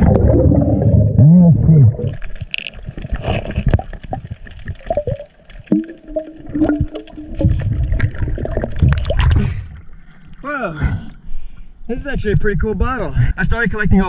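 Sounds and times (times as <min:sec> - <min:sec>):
bubbles gurgling: 0:00.0 - 0:10.4.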